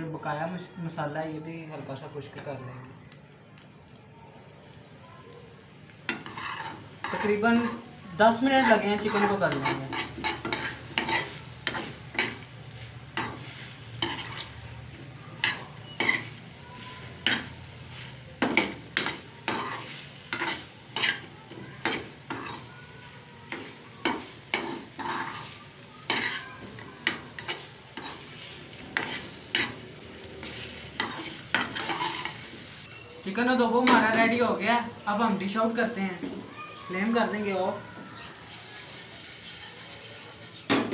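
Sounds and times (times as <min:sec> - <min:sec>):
food sizzling: 0:00.0 - 0:40.9
metal spoon scraping a pan: 0:06.1 - 0:14.7, 0:15.4 - 0:22.7, 0:23.5 - 0:32.8.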